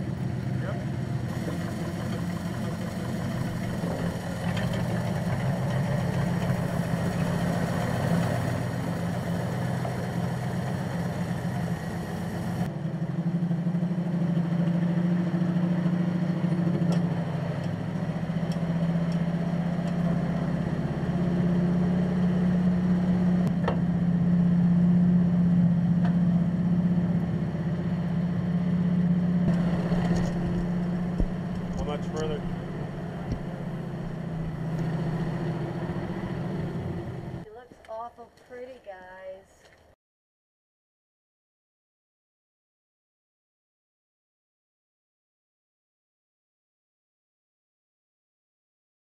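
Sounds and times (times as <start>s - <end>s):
locomotive engine humming: 0.0s - 38.0s.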